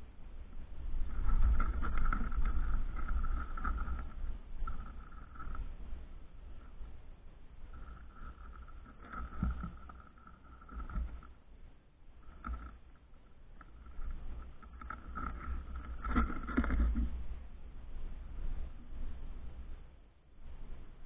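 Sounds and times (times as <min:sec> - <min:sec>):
animal crunching kibble: 0:01.0 - 0:05.8, 0:07.6 - 0:11.4, 0:12.2 - 0:17.2.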